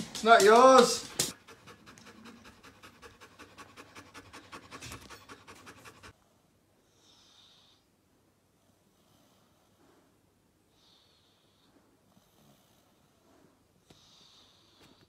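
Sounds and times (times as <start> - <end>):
dog panting: 0.4 - 6.2.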